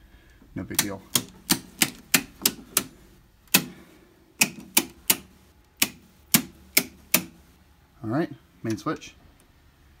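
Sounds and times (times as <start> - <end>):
circuit breakers clicking off: 0.6 - 7.6.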